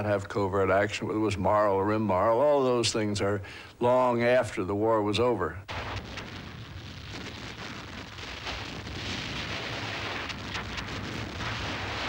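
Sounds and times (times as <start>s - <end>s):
faint cracks: 5.7s - 12.0s
rushing crackling noise: 5.7s - 12.0s.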